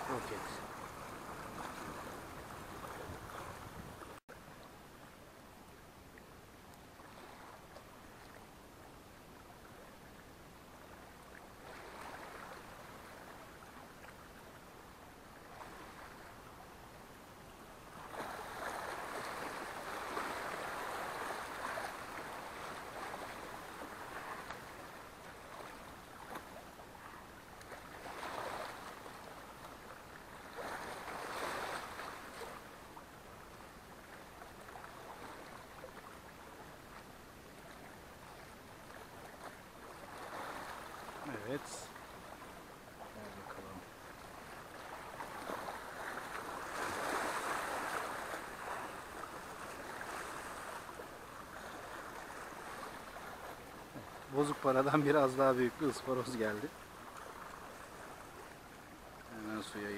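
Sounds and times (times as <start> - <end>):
sea waves washing on shore: 0.0 - 4.6, 6.8 - 8.6, 9.3 - 16.7, 17.8 - 59.9.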